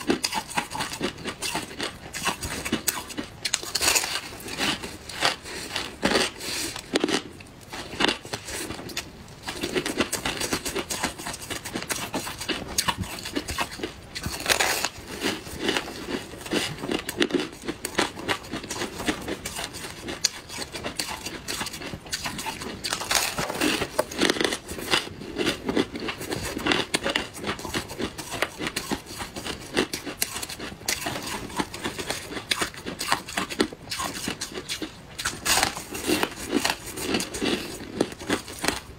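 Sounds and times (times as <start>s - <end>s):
crushed ice crunching: 22.8s - 26.7s.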